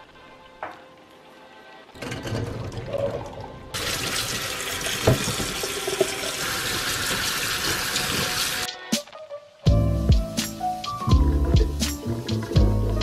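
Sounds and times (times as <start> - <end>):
tap water splashing in sink: 3.8 - 8.6.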